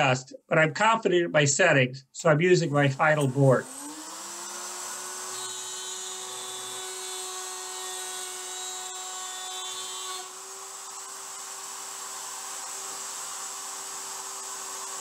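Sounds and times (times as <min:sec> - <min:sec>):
router cutting wood: 0:02.7 - 0:15.0
router whining: 0:02.8 - 0:15.0.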